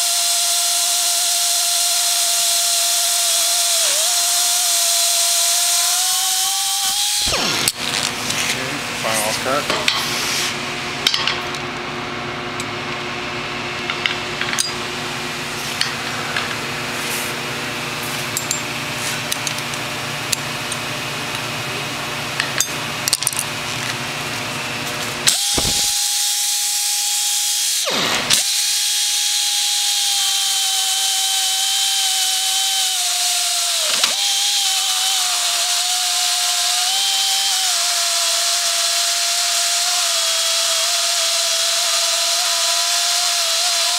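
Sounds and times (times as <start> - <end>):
electric beveler milling steel: 0.0 - 10.6, 25.2 - 43.9.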